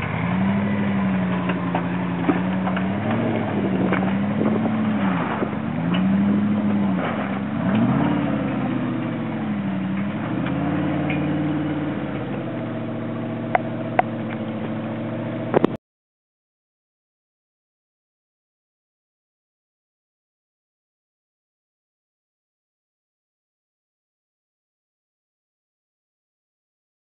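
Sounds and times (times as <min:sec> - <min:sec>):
truck engine revving: 0:00.0 - 0:15.8.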